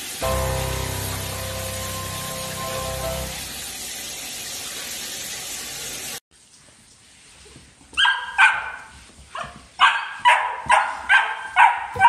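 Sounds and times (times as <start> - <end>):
steady hiss: 0.0 - 3.5
puppy barking: 8.0 - 12.0.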